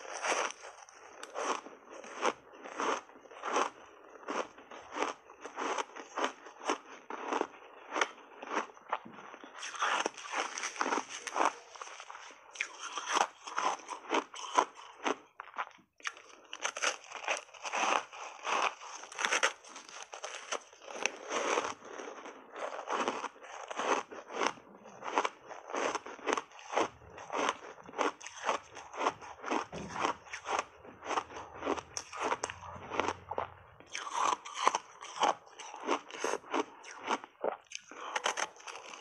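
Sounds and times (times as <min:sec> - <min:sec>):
crunching and chewing ice bar: 0:00.0 - 0:39.0.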